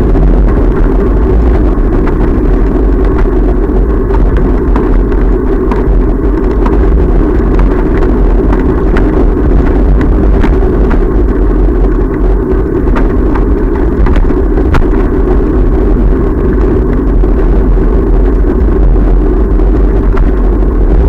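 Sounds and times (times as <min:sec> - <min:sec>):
bicycle rolling on pavement: 0:00.0 - 0:21.0
wind rumble on microphone: 0:00.0 - 0:21.0.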